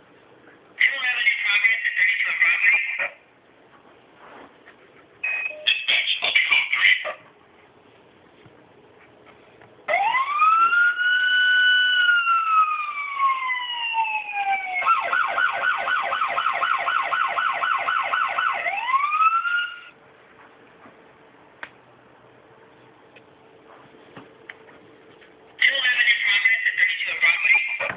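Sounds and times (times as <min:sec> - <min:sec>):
electronic police siren: 0:09.9 - 0:20.0.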